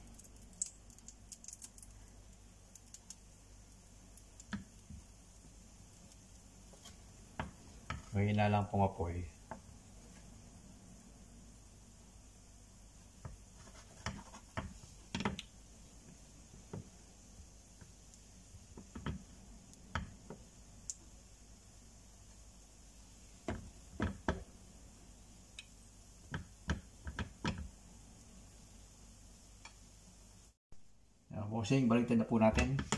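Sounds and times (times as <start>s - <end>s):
frying pan on hob: 0.0s - 24.6s, 25.4s - 30.5s.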